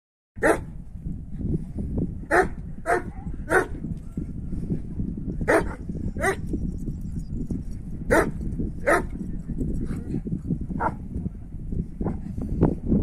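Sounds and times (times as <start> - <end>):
dog barking: 0.4 - 0.7, 2.3 - 3.8, 5.5 - 6.4, 8.1 - 9.1
low rumble: 0.5 - 13.0.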